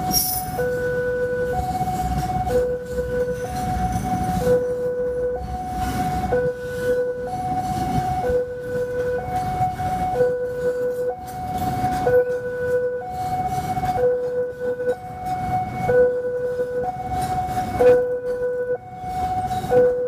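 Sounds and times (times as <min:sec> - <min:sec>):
freight train wagons rumbling: 0:00.0 - 0:20.0
two-tone level crossing alarm: 0:00.0 - 0:20.0.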